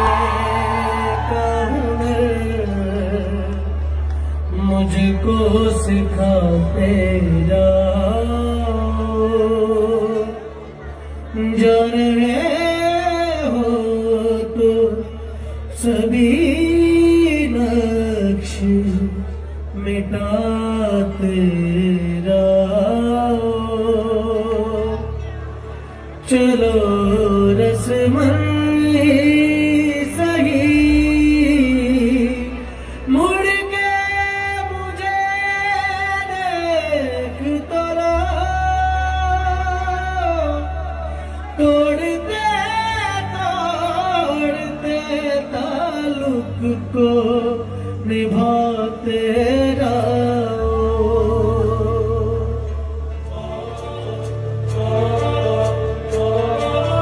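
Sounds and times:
man singing into a microphone: 0.0s - 57.0s.

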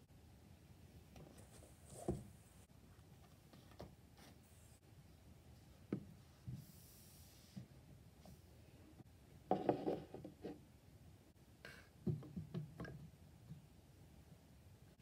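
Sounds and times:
objects sliding and rubbing: 6.3s - 8.6s.

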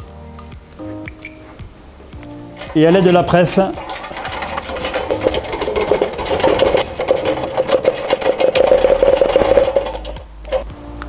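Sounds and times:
steady mechanical tone: 0.9s - 11.0s
hydraulic press clicking: 1.1s - 10.8s.

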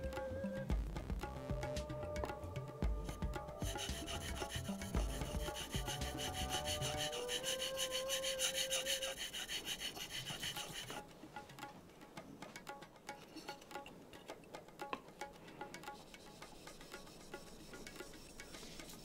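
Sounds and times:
light background music: 0.0s - 8.0s
knife sharpening on whetstone: 3.6s - 11.0s, 15.8s - 19.0s.

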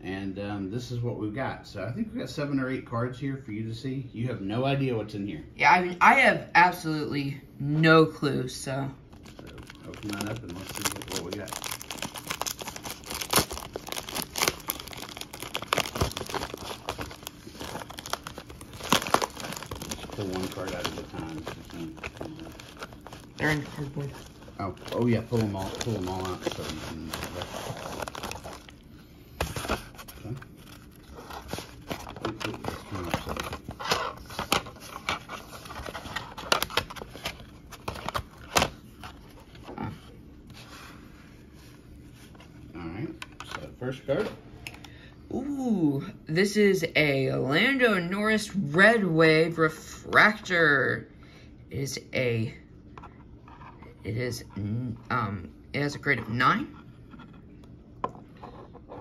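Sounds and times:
bubble mailer crinkling and tearing: 9.1s - 39.7s.

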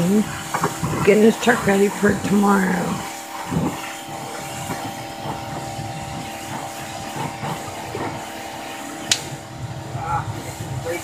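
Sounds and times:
pressure washer humming: 0.0s - 11.0s
spray hissing against metal: 0.0s - 11.0s
sharp click: 9.1s - 9.3s.

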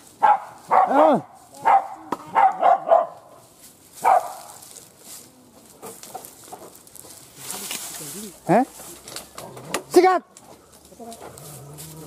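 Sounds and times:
rustling in dry leaves: 0.0s - 9.6s, 10.3s - 12.0s
dog barking: 0.2s - 3.4s, 4.0s - 4.6s.

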